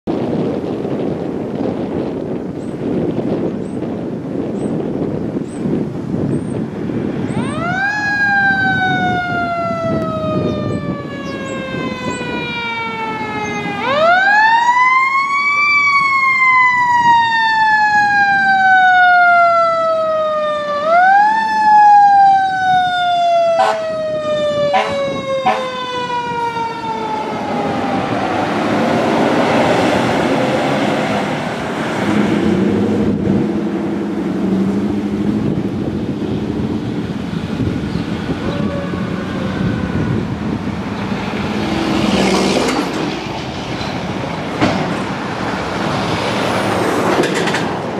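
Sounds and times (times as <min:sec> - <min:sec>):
fire engine siren wailing: 0:06.8 - 0:47.9
short sharp siren blasts: 0:07.4 - 0:28.6, 0:38.4 - 0:40.4
truck passing close by: 0:23.5 - 0:47.9.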